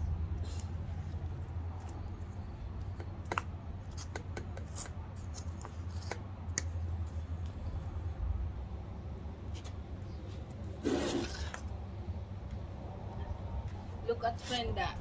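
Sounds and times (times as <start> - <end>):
low hum: 0.0 - 3.9, 5.0 - 14.1
trowel scraping soil: 10.8 - 11.7.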